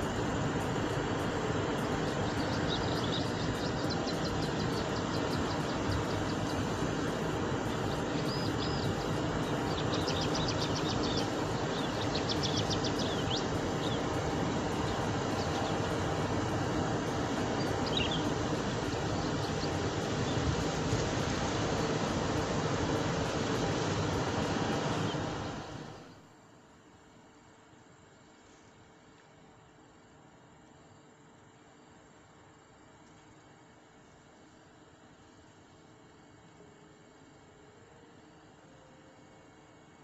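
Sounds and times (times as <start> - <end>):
rushing background noise: 0.0 - 26.3
small bird chirping: 1.2 - 26.0.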